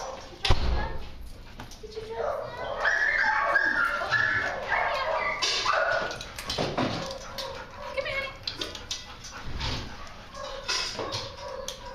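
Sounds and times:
dog whining and yipping: 2.5 - 6.2.

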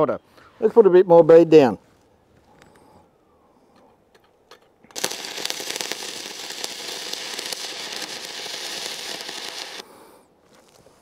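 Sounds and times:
welding arc crackling: 4.9 - 9.8.

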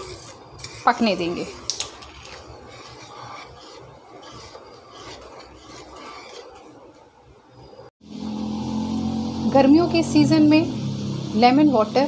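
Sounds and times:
wooden spatula scraping metal pan: 0.0 - 6.9.

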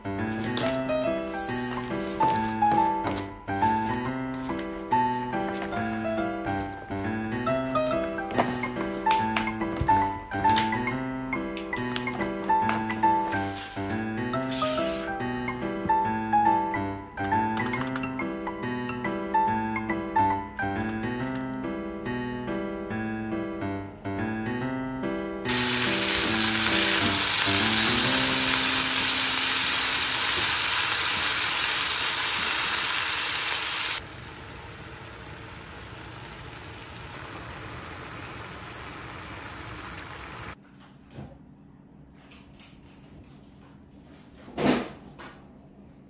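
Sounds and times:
piano music: 0.0 - 31.4
food sizzling in a pan: 25.5 - 34.0.

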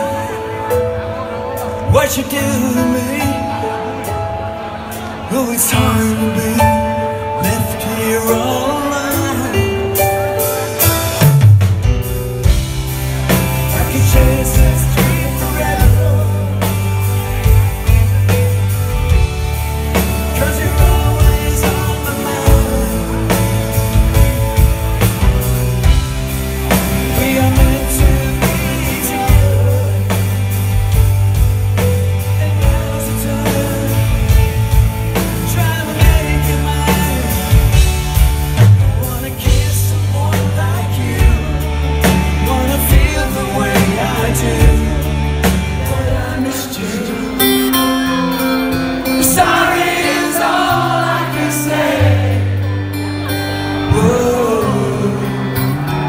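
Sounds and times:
electric guitar: 0.0 - 56.0
live rock band playing: 0.0 - 56.0
drum kit steady beat: 9.1 - 48.0
electric bass: 11.0 - 56.0.

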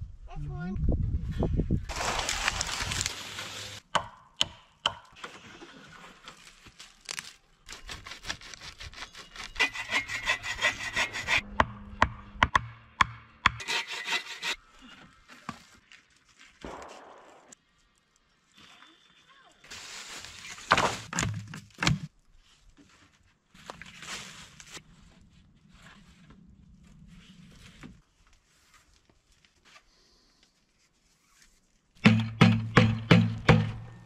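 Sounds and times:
wood being sawn: 8.0 - 11.4, 13.6 - 14.6
poles rubbing and scraping: 8.9 - 11.5, 13.6 - 14.6.

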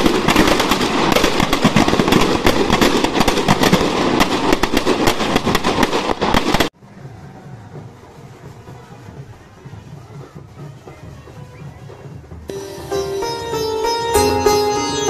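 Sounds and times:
firecrackers crackling: 0.0 - 6.8.

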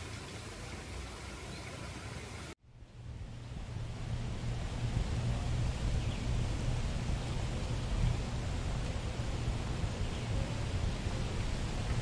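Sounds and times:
wind buffeting microphone: 2.8 - 12.0.

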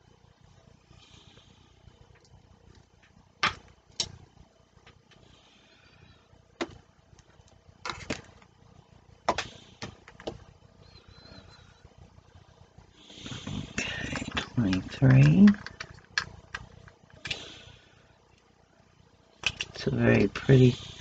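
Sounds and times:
plastic pots clicking and knocking: 13.4 - 17.4.

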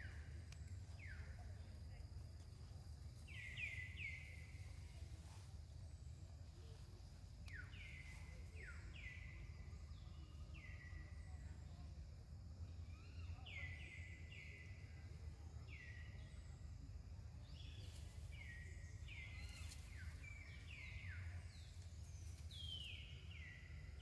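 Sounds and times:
steady low rumble: 0.0 - 8.8.

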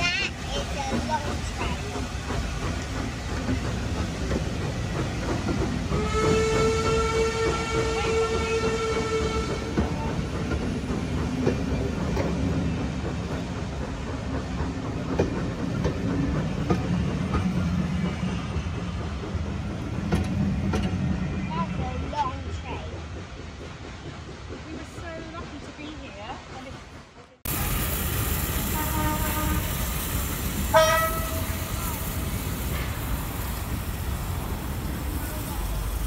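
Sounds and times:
train wheels rumbling over rail joints: 0.0 - 36.0
train whistle: 6.0 - 9.8, 28.6 - 29.8, 30.7 - 31.9.

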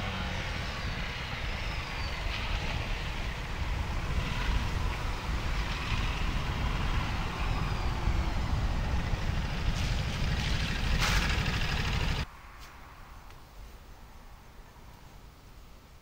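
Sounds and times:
motorcycle engine rumble: 0.0 - 12.3
wind rush: 0.0 - 14.8.

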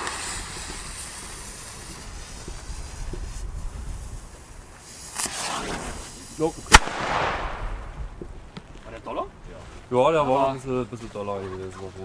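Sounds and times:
firecracker fuse hissing: 0.0 - 8.3.

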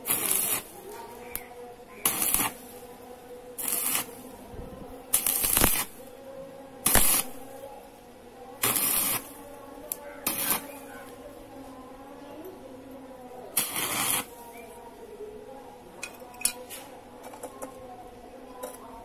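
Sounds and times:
arc welder crackling: 0.0 - 7.8, 8.6 - 11.2, 13.5 - 14.8.

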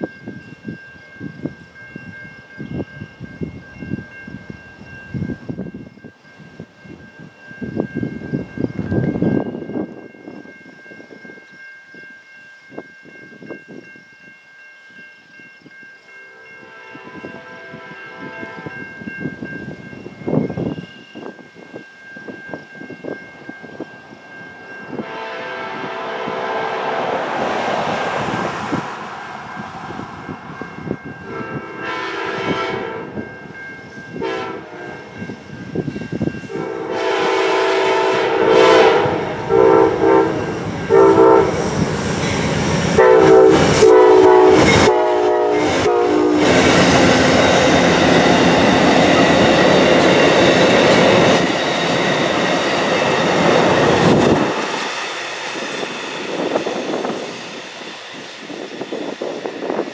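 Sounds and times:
train horn blasts and toots: 16.2 - 18.9, 24.9 - 28.4, 31.2 - 33.3, 34.1 - 35.2, 36.4 - 41.8, 42.9 - 46.8.

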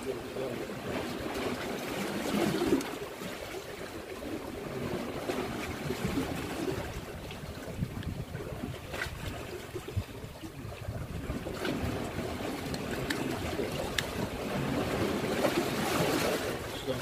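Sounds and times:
water lapping against rocks: 0.0 - 17.0
wind buffeting microphone: 4.2 - 17.0.

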